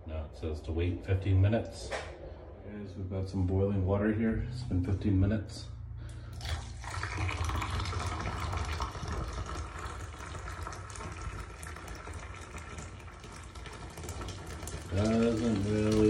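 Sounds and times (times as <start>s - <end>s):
water pouring into drain: 6.3s - 16.0s.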